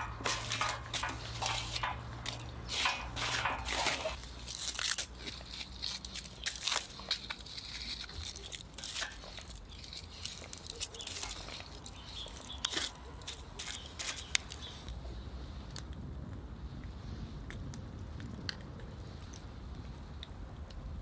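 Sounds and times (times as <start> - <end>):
campfire embers crackling and popping: 0.0 - 15.0, 15.6 - 21.0.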